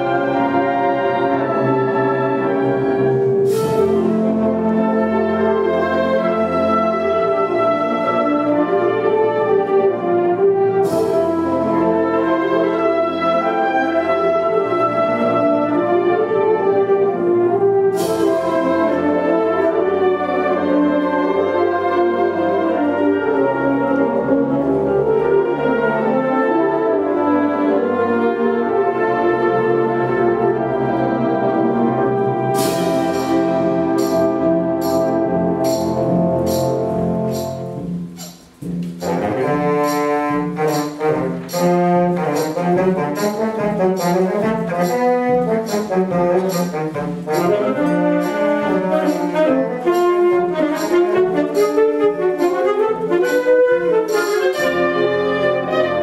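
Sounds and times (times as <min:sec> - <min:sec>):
wind band playing: 0:00.0 - 0:56.0
percussion strokes: 0:32.6 - 0:55.3.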